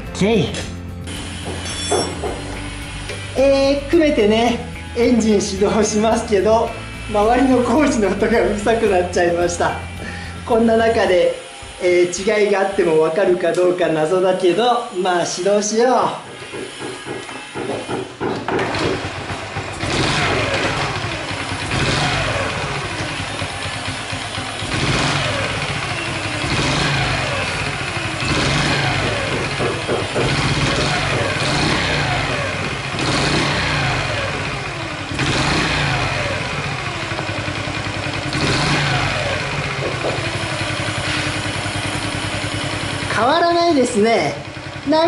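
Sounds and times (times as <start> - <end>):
motorcycle engine revving: 1.0 - 13.2, 16.1 - 45.0
light engine rattle: 16.3 - 45.0.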